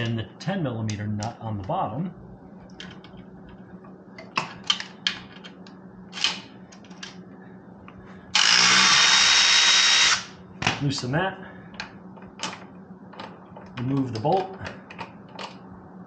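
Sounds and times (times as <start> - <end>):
electric ratchet running: 8.3 - 10.4.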